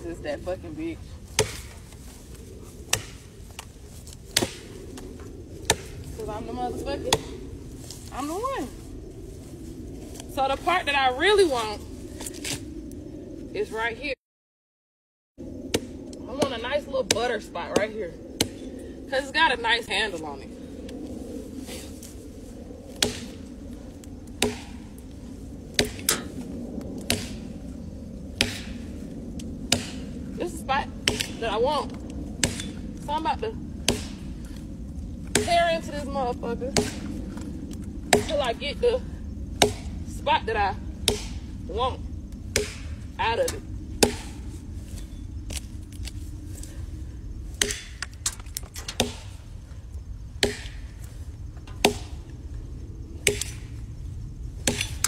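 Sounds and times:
axe chopping wood: 1.3 - 1.8, 2.9 - 4.7, 5.6 - 6.0, 7.1 - 7.3, 15.7 - 18.7, 23.0 - 23.4, 24.4 - 24.8, 25.8 - 26.3, 27.0 - 27.4, 28.4 - 28.8, 29.7 - 30.1, 31.0 - 31.5, 32.4 - 32.8, 33.8 - 34.3, 35.3 - 35.6, 36.7 - 37.5, 38.1 - 38.5, 39.6 - 40.0, 41.0 - 41.5, 42.5 - 44.4, 47.6 - 49.4, 50.4 - 50.9, 51.7 - 52.2, 53.2 - 53.6, 54.6 - 55.0.

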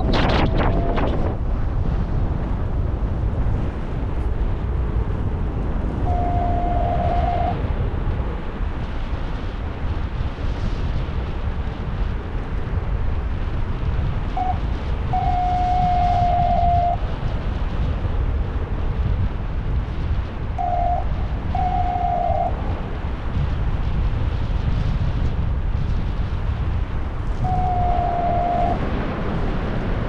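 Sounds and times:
wind buffeting microphone: 0.0 - 30.0
mid-pitched tone: 27.5 - 28.8.

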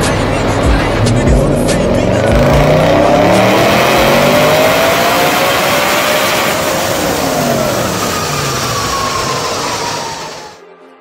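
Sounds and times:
car engine revving on a dynamometer: 1.8 - 10.5.

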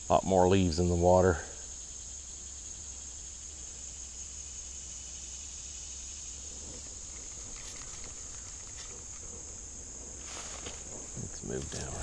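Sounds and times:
insects chirping chorus: 0.0 - 12.0
footsteps rustling through brush: 10.1 - 12.0.

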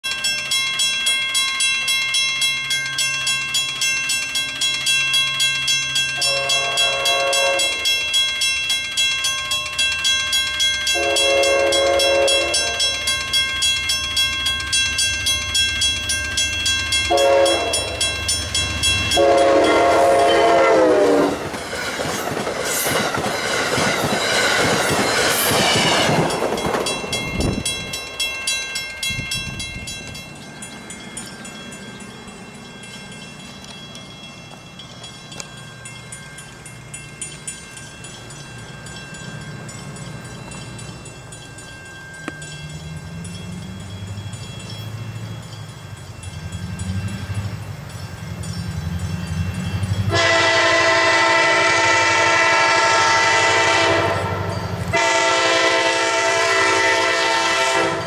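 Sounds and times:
crossing warning bell ringing: 0.0 - 58.0
rush of passing train: 0.1 - 58.0
locomotive engine rumble: 2.6 - 58.0
train horn blasts: 6.2 - 7.9, 10.9 - 13.0, 17.1 - 18.1, 19.1 - 21.4, 50.1 - 58.0.

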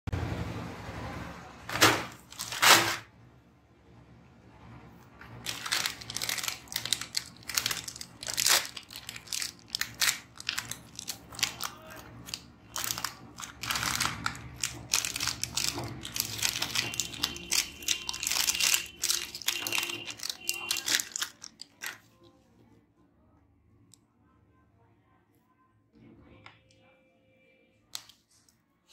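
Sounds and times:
plastic packets crinkling and tearing: 1.7 - 3.0, 5.2 - 22.1.

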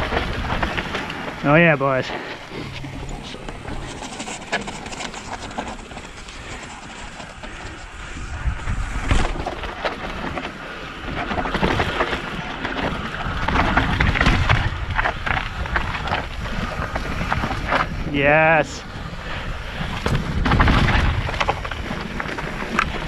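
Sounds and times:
wind on microphone: 0.0 - 23.0
bike tyres knocking and rattling: 19.4 - 23.0.

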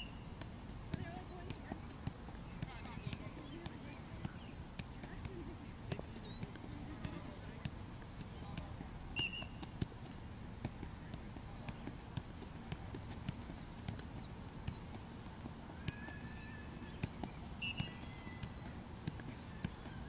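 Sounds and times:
soccer ball kicked thuds: 0.0 - 20.0.

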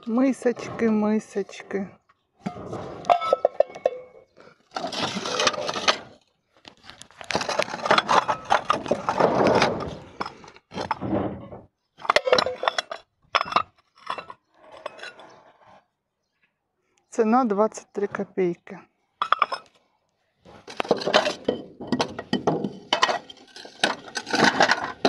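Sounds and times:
scraping and rustling in debris: 2.4 - 15.6, 20.5 - 25.0
crockery clinking: 19.2 - 19.7.

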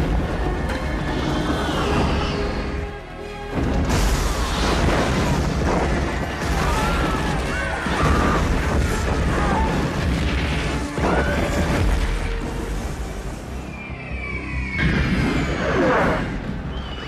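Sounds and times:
dramatic music: 0.0 - 17.0
crashing debris: 3.5 - 12.6
booming explosions: 3.5 - 13.6.

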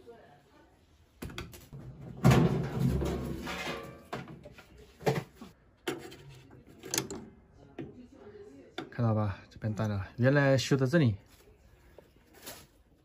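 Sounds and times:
sheet metal scraping and rattling: 1.8 - 4.2.

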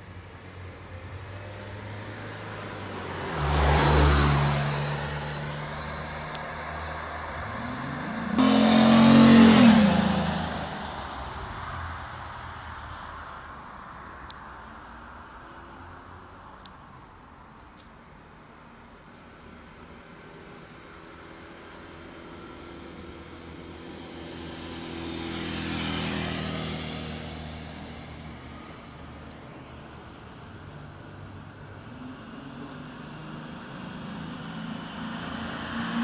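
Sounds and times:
car accelerating past: 1.2 - 11.2, 21.4 - 30.3, 31.8 - 36.0.

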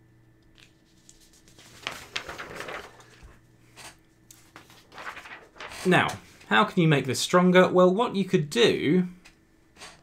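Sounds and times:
paper rustling and sliding: 0.6 - 6.4
paper scuffing: 0.8 - 6.5.

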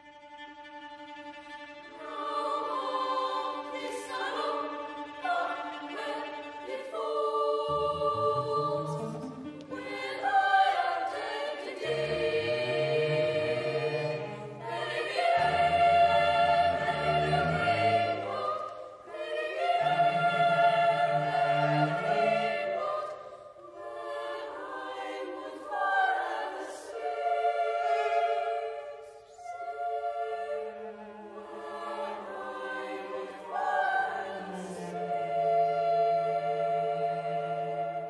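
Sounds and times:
boys' choir singing: 1.5 - 38.0
cello low notes: 7.6 - 10.1, 11.8 - 18.7, 19.6 - 23.0.

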